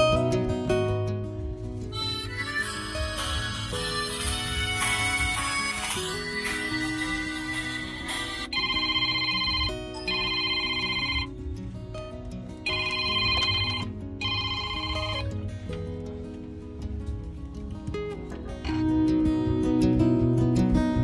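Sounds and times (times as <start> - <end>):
background music: 0.0 - 21.0
phone ringing: 6.7 - 11.5, 12.6 - 15.4.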